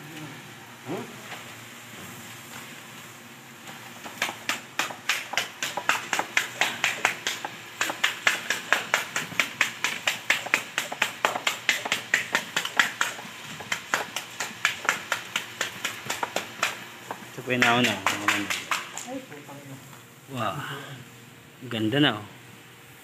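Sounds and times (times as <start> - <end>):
sponge patting wet cement: 4.0 - 19.2.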